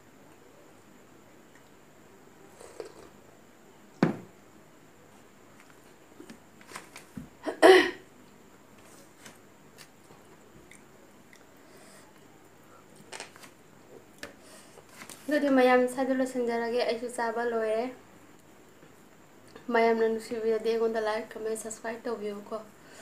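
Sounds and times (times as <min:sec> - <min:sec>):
quiet chewing and mouth clicks: 0:01.4 - 0:01.8, 0:02.5 - 0:03.2, 0:10.0 - 0:13.1.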